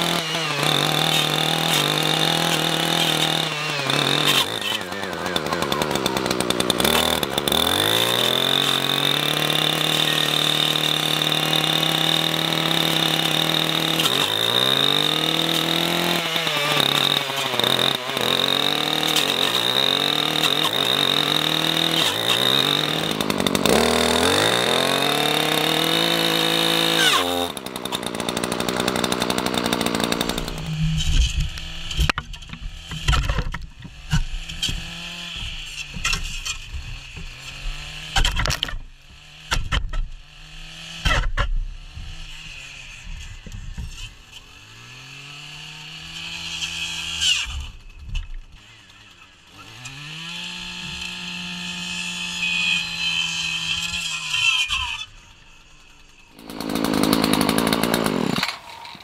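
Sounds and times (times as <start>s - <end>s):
blade cutting stems: 0.0s - 38.8s, 49.6s - 55.1s, 56.3s - 59.0s
brush cutter engine at full throttle: 0.0s - 59.0s.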